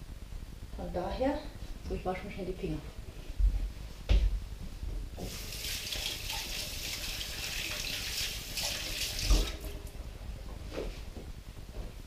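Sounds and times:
water splashing into sink: 0:05.2 - 0:09.8
kitchen tap running: 0:05.2 - 0:09.9.

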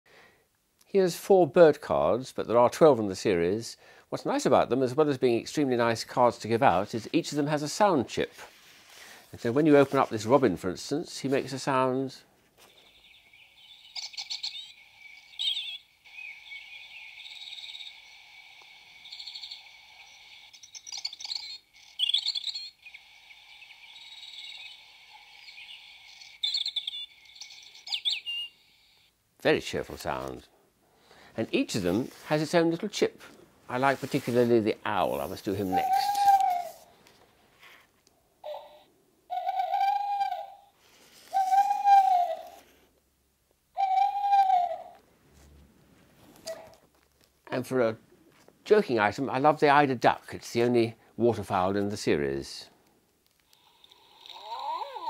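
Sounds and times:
faint steady hiss: 0:00.1 - 0:39.4, 0:40.4 - 0:55.0
robin song from small speaker: 0:12.7 - 0:29.0, 0:35.3 - 0:36.8, 0:41.3 - 0:42.6, 0:43.8 - 0:44.9
recorded owl hooting: 0:12.7 - 0:29.1, 0:35.6 - 0:36.9, 0:38.4 - 0:42.8, 0:43.7 - 0:45.0.

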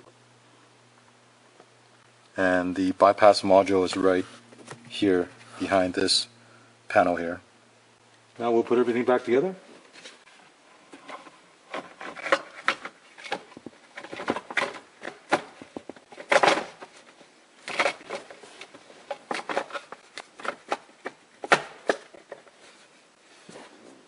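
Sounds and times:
plastic rubbing and scraping: 0:09.9 - 0:24.0.

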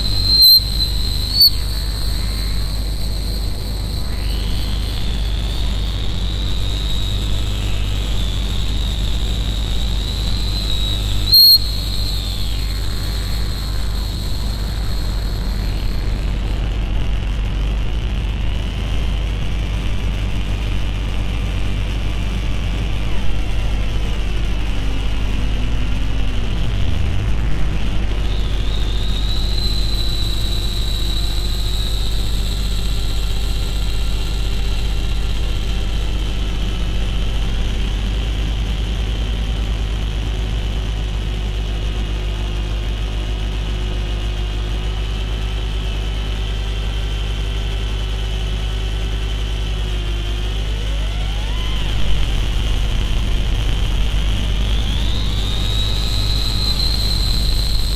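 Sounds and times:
high whistling tone: 0:00.0 - 0:16.5, 0:28.0 - 0:35.4, 0:50.5 - 0:57.9
dense electronic drone: 0:00.0 - 0:57.9.

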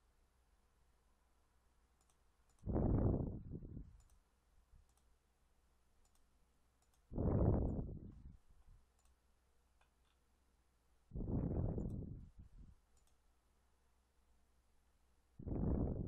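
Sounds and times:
computer mouse clicks: 0:02.0 - 0:02.7, 0:03.9 - 0:04.2, 0:04.8 - 0:05.1, 0:06.0 - 0:07.8, 0:08.9 - 0:09.2, 0:11.6 - 0:12.2, 0:12.9 - 0:13.2
muffled rush of noise: 0:11.2 - 0:12.2, 0:15.4 - 0:16.0.

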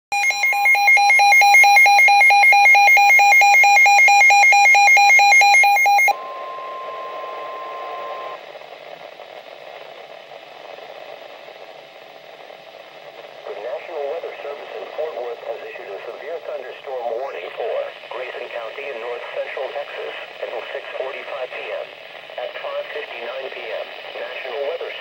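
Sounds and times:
radio alarm beeping rapidly: 0:00.1 - 0:08.4
steady warning tone: 0:00.1 - 0:08.4
faint radio hiss: 0:06.2 - 0:25.0.

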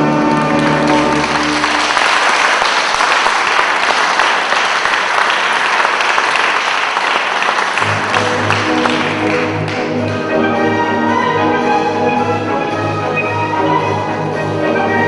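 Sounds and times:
orchestral music: 0:00.0 - 0:05.0, 0:07.4 - 0:15.0
audience applauding: 0:00.0 - 0:10.4.

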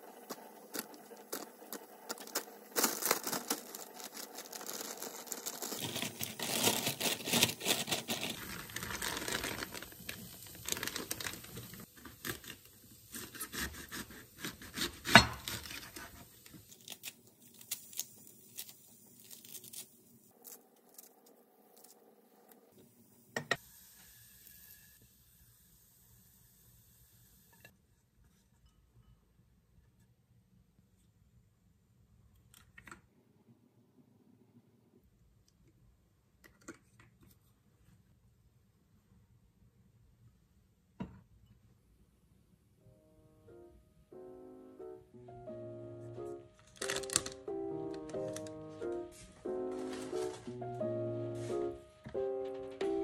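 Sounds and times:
paper towel crinkling: 0:00.1 - 0:12.6, 0:46.3 - 0:53.0
leaves cracking: 0:02.1 - 0:11.7, 0:46.6 - 0:50.6
knife cutting cabbage on board: 0:12.1 - 0:16.3.

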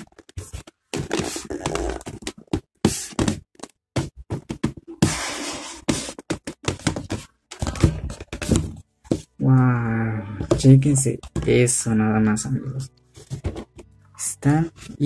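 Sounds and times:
plastic tray scraping cardboard: 0:00.3 - 0:03.3.

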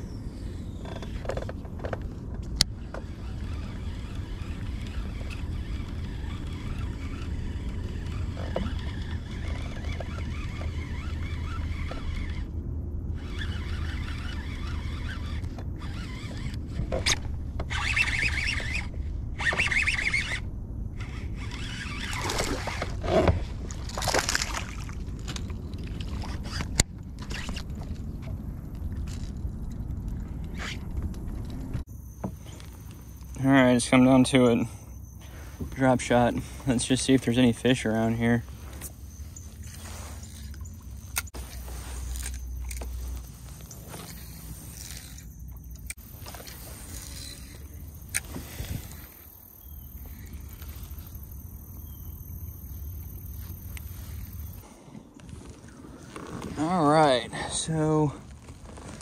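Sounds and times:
water rumbling around boat: 0:00.0 - 0:59.0
water sloshing: 0:21.0 - 0:30.5, 0:35.2 - 0:51.8.

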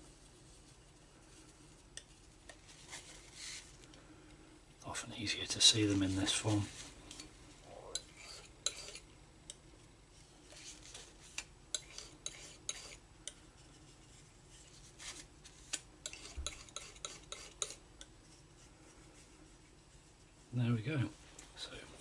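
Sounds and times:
palette knife scraping and tapping: 0:08.0 - 0:09.6, 0:10.5 - 0:13.4, 0:15.7 - 0:18.1.

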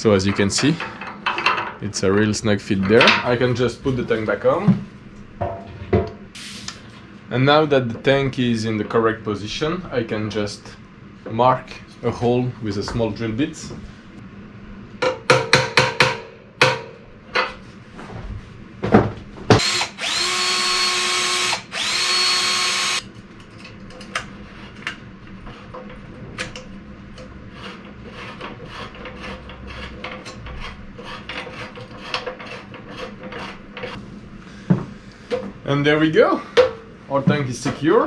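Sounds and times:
electric drill whining: 0:19.6 - 0:23.0.

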